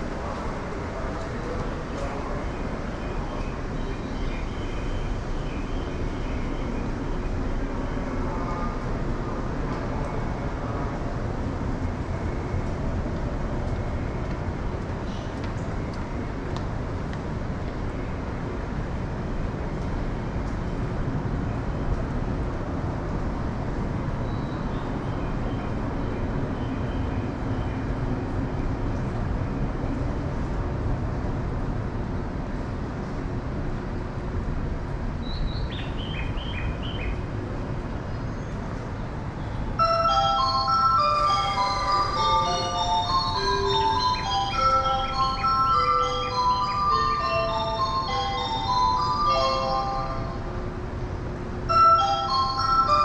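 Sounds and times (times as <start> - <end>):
train station platform rumble: 0.0 - 53.0
electronic chime melody: 39.8 - 50.5, 51.7 - 53.0.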